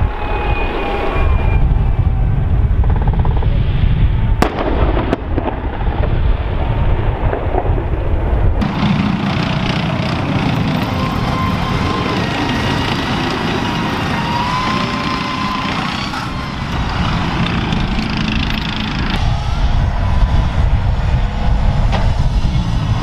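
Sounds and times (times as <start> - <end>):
rumbling explosions: 1.4 - 23.0
gunfire: 4.4 - 5.9
sharp cracks: 4.4 - 6.0
tank turbine engine running: 8.5 - 23.0.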